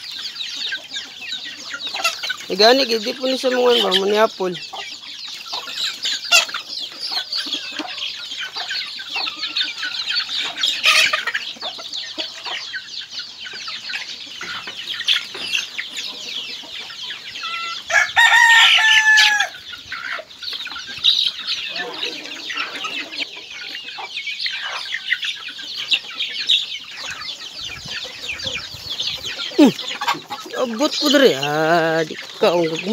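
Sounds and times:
chickens clucking: 0:00.0 - 0:32.9
chicks peeping: 0:00.0 - 0:32.9
rooster crowing: 0:17.5 - 0:19.6.

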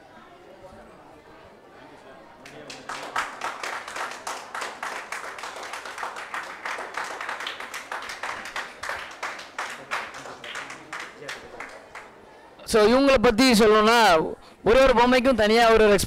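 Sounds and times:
group of people clapping: 0:02.4 - 0:12.2.

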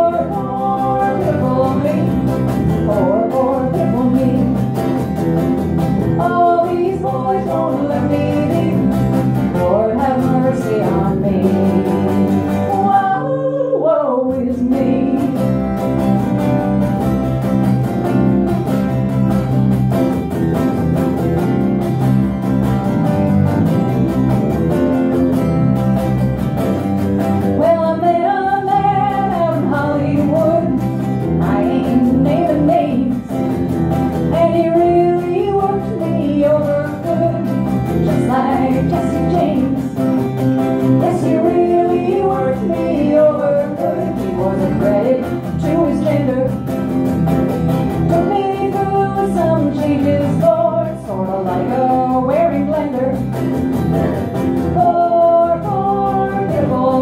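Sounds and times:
woman singing: 0:00.0 - 0:05.0, 0:06.0 - 0:15.8, 0:27.4 - 0:33.4, 0:34.2 - 0:46.7, 0:48.0 - 0:53.4, 0:54.6 - 0:57.0
electric bass guitar: 0:00.0 - 0:57.0
strummed acoustic guitar: 0:00.0 - 0:57.0.

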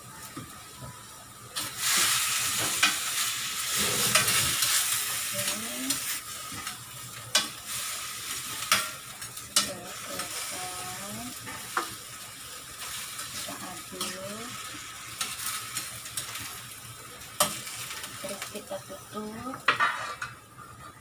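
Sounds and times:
vegetables sizzling in oil: 0:00.0 - 0:21.0
metal spoon scraping pan: 0:03.7 - 0:05.0, 0:19.7 - 0:20.4.

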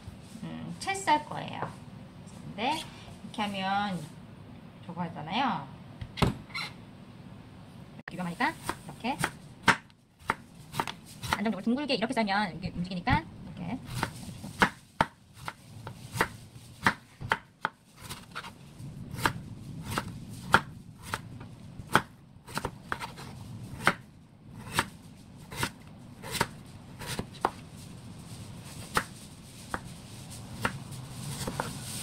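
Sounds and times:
knife slicing on wooden board: 0:24.6 - 0:27.6, 0:31.4 - 0:31.8.

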